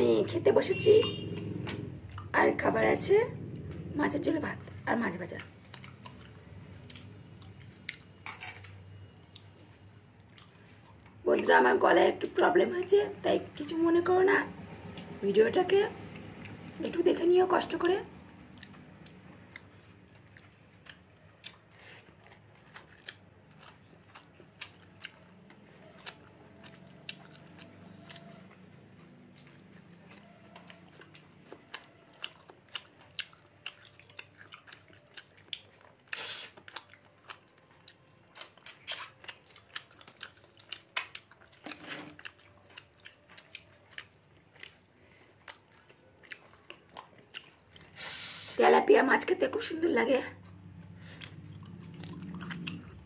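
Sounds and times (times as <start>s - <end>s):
person chewing food: 1.0s - 2.4s, 4.6s - 11.5s, 16.1s - 17.0s, 17.8s - 48.4s, 50.4s - 53.0s.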